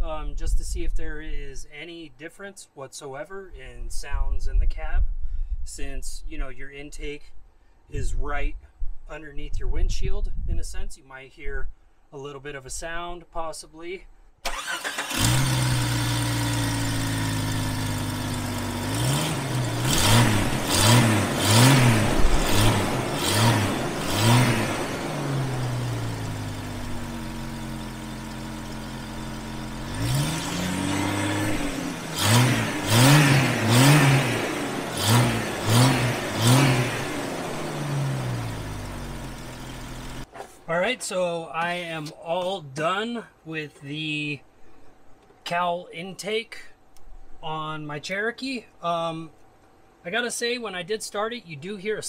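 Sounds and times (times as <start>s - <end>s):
car engine revving: 14.5s - 40.3s.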